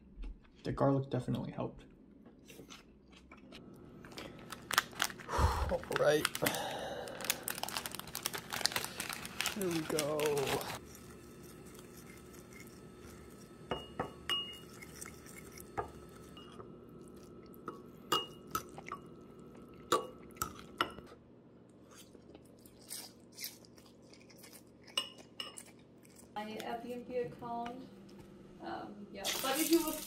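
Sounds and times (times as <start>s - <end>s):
fork clinking against ceramic bowl: 13.7s - 14.8s.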